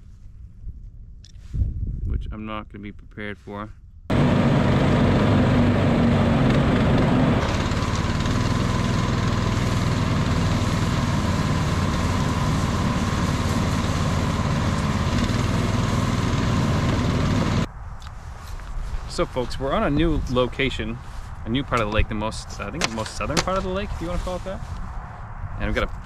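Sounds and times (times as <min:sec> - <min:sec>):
small engine running steadily: 0:04.1 - 0:17.7.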